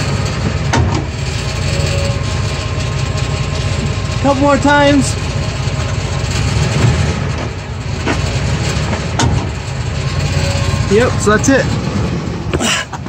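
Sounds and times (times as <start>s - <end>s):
truck engine idling: 0.0s - 13.0s
sharp driveshaft clunks: 8.9s - 9.6s.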